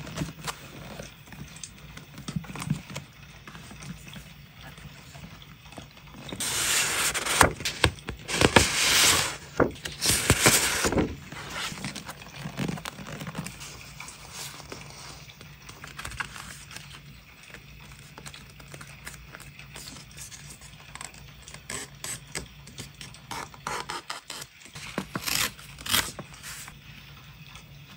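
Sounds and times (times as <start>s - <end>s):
paper sheets rustling: 6.2s - 17.0s.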